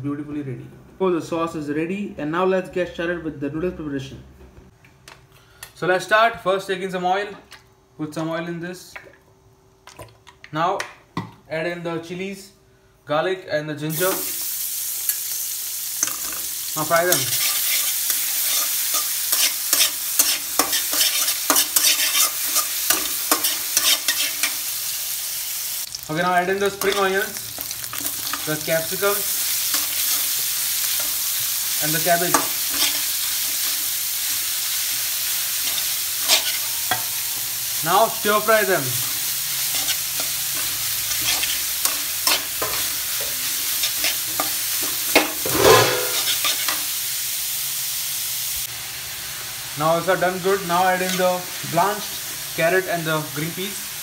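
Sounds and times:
food sizzling in oil: 0:13.9 - 0:54.0
spatula scraping and knocking on pan: 0:18.5 - 0:24.5, 0:39.8 - 0:46.8
utensil scraping and knocking pan: 0:44.0 - 0:46.8.

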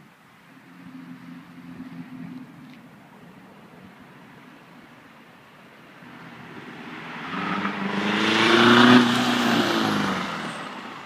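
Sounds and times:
car accelerating past: 0:06.1 - 0:11.0.

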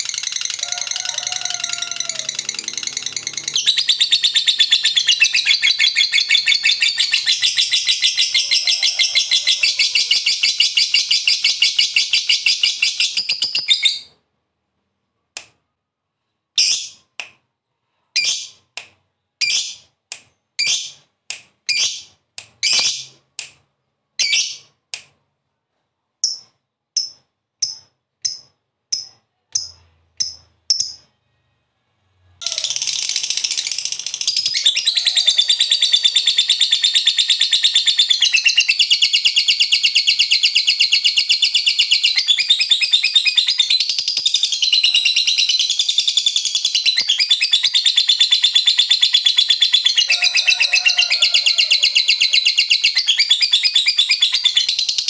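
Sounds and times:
lovebird chattering trill: 0:00.0 - 0:14.1, 0:32.4 - 0:55.0.

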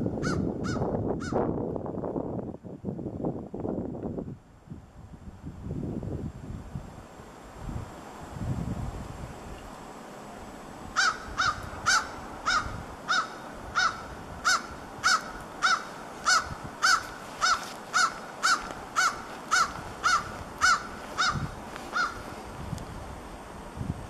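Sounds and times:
bird calling short notes: 0:11.0 - 0:22.2.

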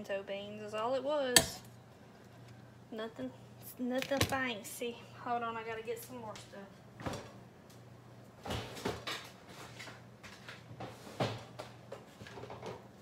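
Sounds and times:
knocks and clunks of kitchen items: 0:07.0 - 0:07.4, 0:08.4 - 0:13.0.

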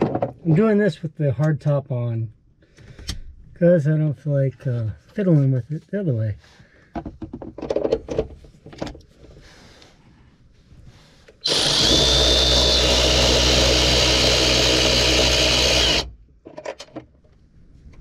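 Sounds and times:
power tool running: 0:11.4 - 0:16.1.

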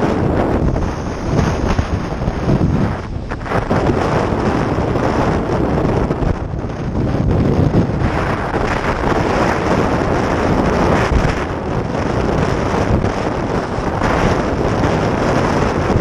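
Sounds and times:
wind buffeting microphone: 0:00.0 - 0:16.0
water splashing over kayak: 0:00.5 - 0:05.5.

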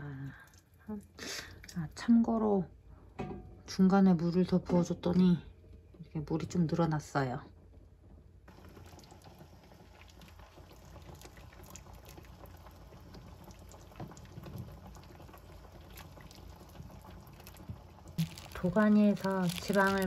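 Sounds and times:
broth simmering with small pops: 0:00.0 - 0:02.5, 0:07.6 - 0:20.0.

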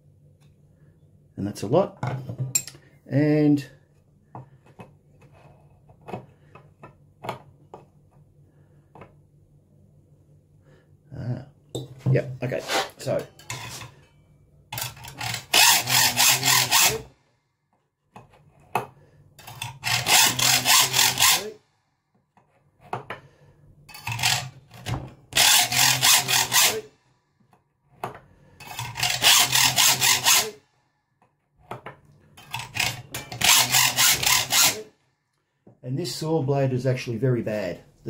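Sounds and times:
hacksaw rasping on steel: 0:12.5 - 0:13.9, 0:14.8 - 0:17.1, 0:19.4 - 0:21.6, 0:23.9 - 0:24.6, 0:25.4 - 0:26.9, 0:28.6 - 0:30.6, 0:32.4 - 0:34.9.

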